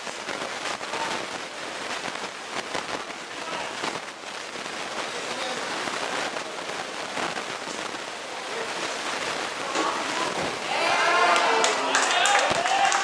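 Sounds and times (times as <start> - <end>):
crowd shouting: 9.7 - 13.0.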